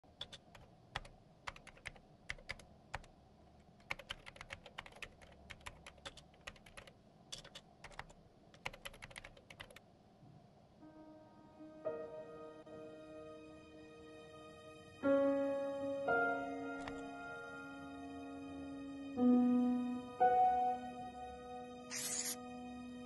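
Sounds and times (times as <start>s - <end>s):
typing on laptop keyboard: 0.1s - 3.1s, 3.7s - 9.8s.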